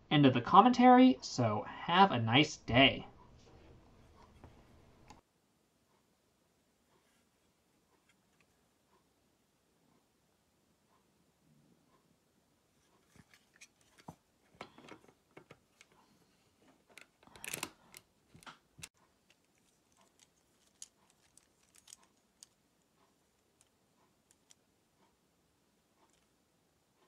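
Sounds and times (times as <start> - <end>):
plastic bricks clicking together: 16.9 - 18.6, 19.3 - 22.6.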